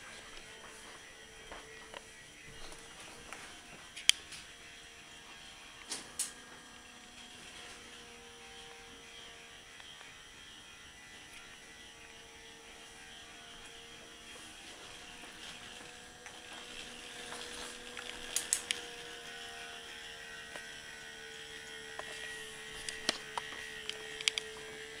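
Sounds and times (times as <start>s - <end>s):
electric motor humming: 0.0s - 25.0s
sharp plastic clicks: 5.8s - 6.4s, 17.9s - 18.8s, 22.0s - 24.5s.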